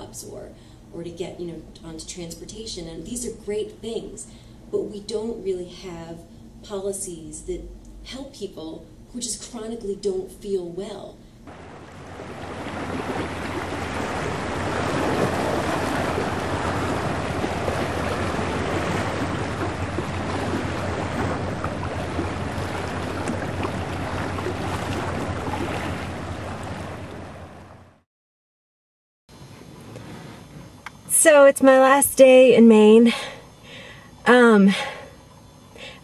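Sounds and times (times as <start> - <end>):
small waves washing against stone: 11.5 - 27.0
wind rumbling on microphone: 11.5 - 28.0.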